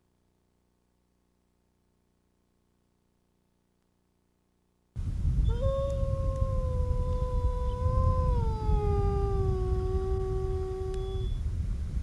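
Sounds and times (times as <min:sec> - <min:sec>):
steady low rumble: 0:05.0 - 0:12.0
wolf howling: 0:05.4 - 0:11.3.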